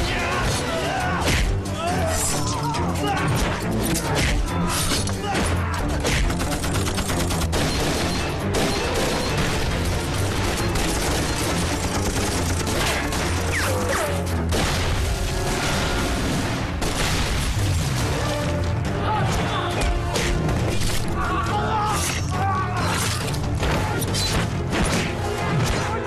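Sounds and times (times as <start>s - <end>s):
background film music: 0.0s - 26.0s
machine-gun fire: 6.2s - 13.6s
explosions: 14.5s - 18.4s.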